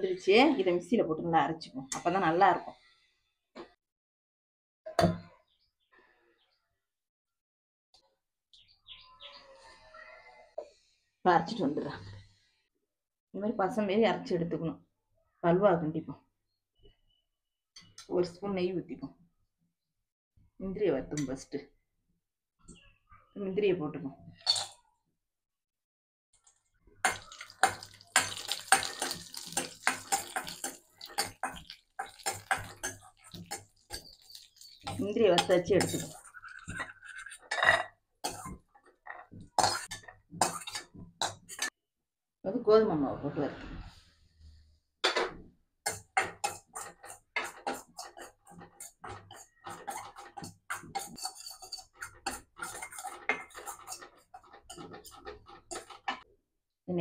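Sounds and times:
nuts sizzling in ghee: 27.0 - 35.1
spoon scraping a metal pan: 27.0 - 41.7, 45.8 - 56.3.

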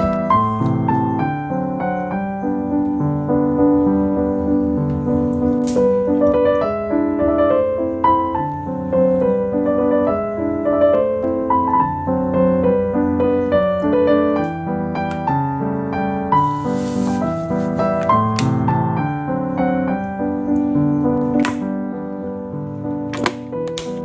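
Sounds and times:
calm piano music: 0.0 - 24.0.

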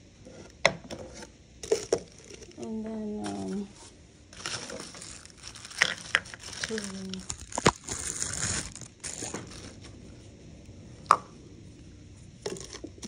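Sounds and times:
plastic wrap rustling: 1.6 - 10.0.

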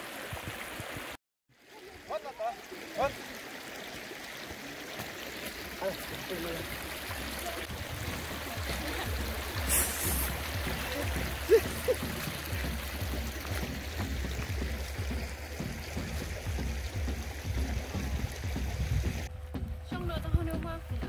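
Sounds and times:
stream water flowing over rock: 0.0 - 19.3
wind rumble on microphone: 12.1 - 21.0.

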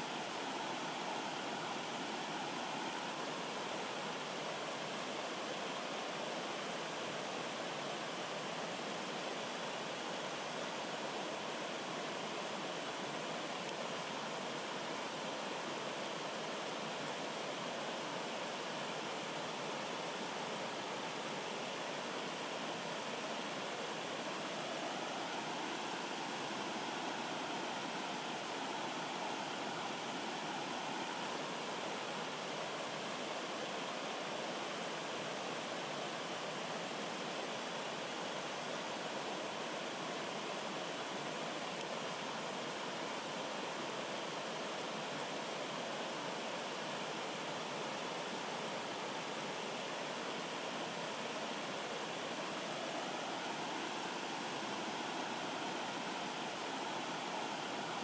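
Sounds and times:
stream rushing over rocks: 0.0 - 58.0.

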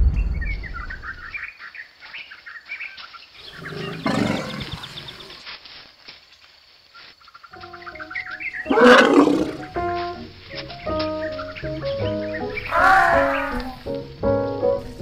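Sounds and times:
low rumble: 0.0 - 1.4
birds chirping: 0.0 - 5.5, 6.2 - 15.0
elephant low call: 8.7 - 9.8.

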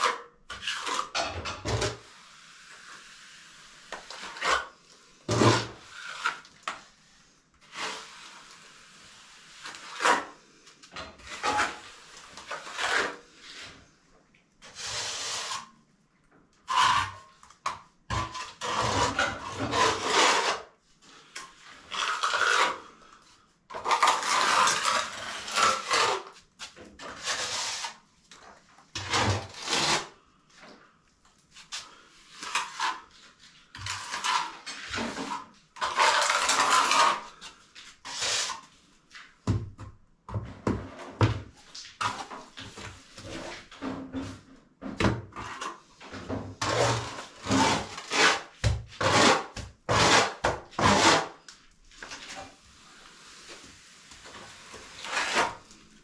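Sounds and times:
trowel scraping wet render: 0.0 - 6.9, 7.6 - 10.5, 11.2 - 13.8, 14.6 - 15.7, 16.6 - 17.5, 18.1 - 28.0, 28.9 - 30.2, 31.8 - 38.7, 45.4 - 51.4, 54.2 - 55.8.

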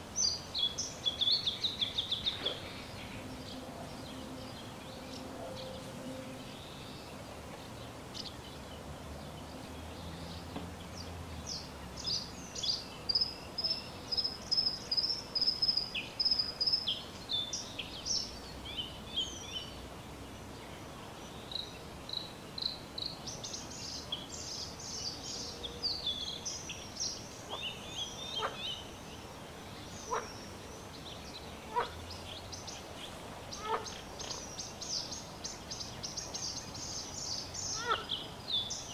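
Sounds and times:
small birds chirping: 0.0 - 38.9
steady outdoor hiss: 0.0 - 38.9.

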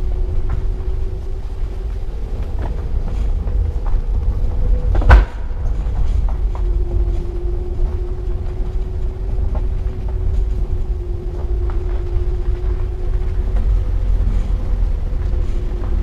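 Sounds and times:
constant hum: 0.0 - 16.0.

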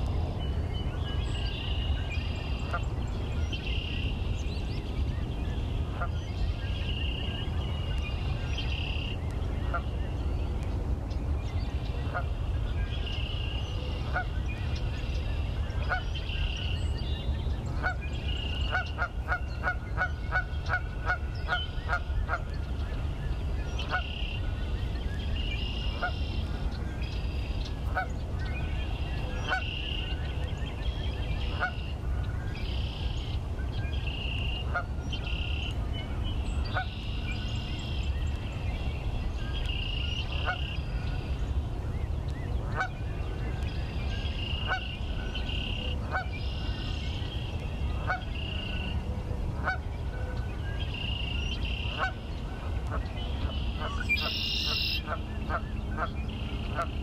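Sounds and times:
geese honking: 51.7 - 52.2, 53.8 - 56.1
high-pitched bird calls: 53.5 - 55.6.

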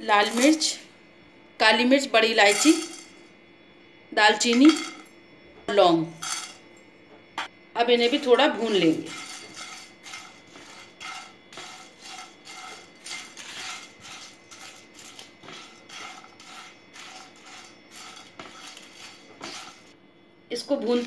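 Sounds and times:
dry spices rattling in a pan: 0.0 - 0.8, 2.2 - 3.2, 4.4 - 5.0, 7.8 - 20.0
spatula scraping a pan: 0.0 - 0.8, 7.8 - 20.0.

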